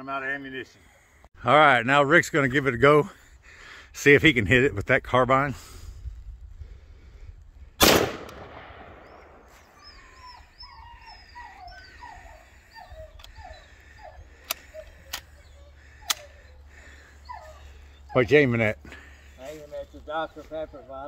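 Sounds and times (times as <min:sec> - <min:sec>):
rifle shot: 0:07.8 - 0:09.5
sharp clicks: 0:13.2 - 0:13.4, 0:14.4 - 0:15.4, 0:16.0 - 0:16.4.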